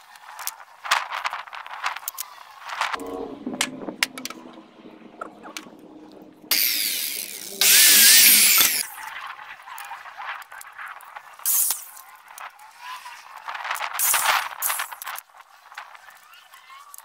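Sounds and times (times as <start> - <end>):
power tool running: 6.5 - 8.9.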